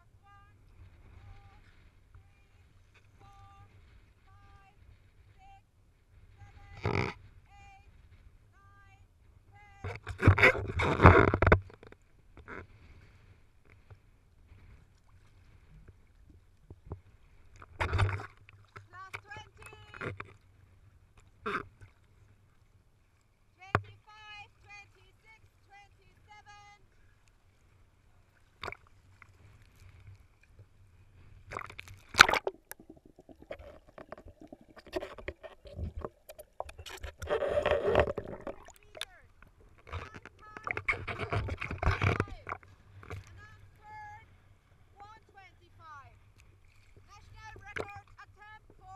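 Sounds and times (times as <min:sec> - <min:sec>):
underwater low hum: 0:00.0 - 0:48.9
water lapping and sloshing: 0:00.0 - 0:48.9
underwater clicks and bubbles: 0:09.8 - 0:12.6, 0:15.8 - 0:20.5, 0:28.6 - 0:30.7, 0:31.4 - 0:43.9, 0:46.3 - 0:48.9
small splashes: 0:14.6 - 0:20.6, 0:26.8 - 0:44.9, 0:46.3 - 0:48.9.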